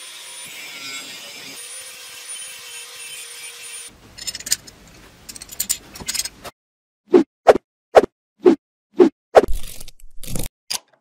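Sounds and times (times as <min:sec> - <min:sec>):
metallic clicks and scrapes: 0:04.2 - 0:06.5.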